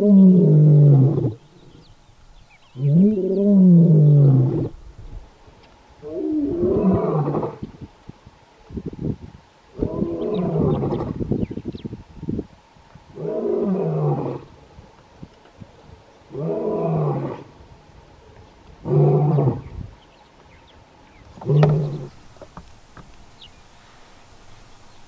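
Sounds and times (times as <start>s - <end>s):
lion roaring: 0.0s - 1.4s, 2.8s - 4.8s, 6.0s - 7.6s, 13.2s - 14.5s, 16.3s - 17.5s, 18.8s - 19.7s, 21.4s - 22.2s.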